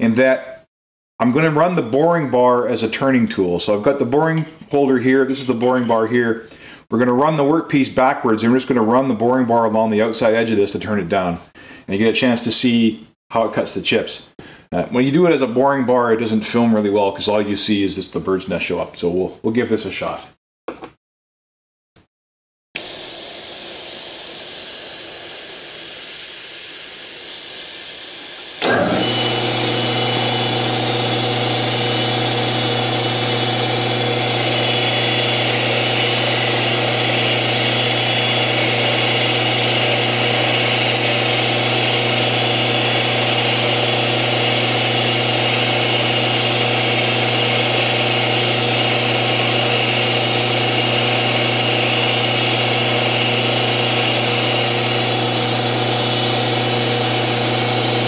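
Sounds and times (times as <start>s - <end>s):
coolant mist spray hissing: 22.8s - 28.6s
lathe spindle humming: 28.6s - 58.0s.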